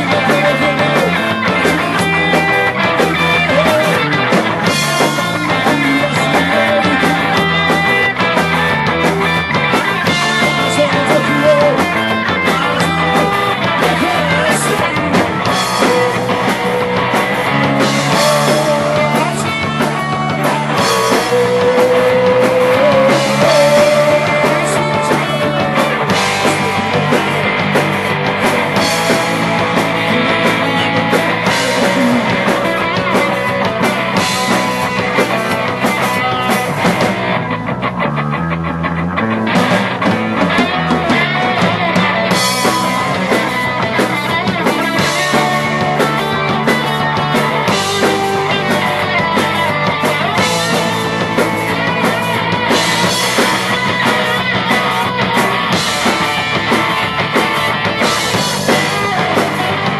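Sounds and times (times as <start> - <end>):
drums with cymbals: 0.0 - 37.6, 39.5 - 59.9
bass guitar: 0.0 - 59.9
electric guitars: 0.0 - 59.9.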